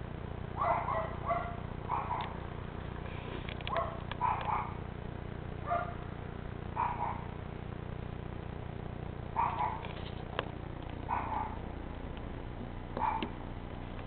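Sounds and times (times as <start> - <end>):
steady low hum: 0.0 - 14.0
dog barking: 0.6 - 2.4, 3.7 - 4.9, 5.6 - 6.1, 6.8 - 7.4, 9.4 - 9.9, 11.1 - 11.7, 13.0 - 13.4.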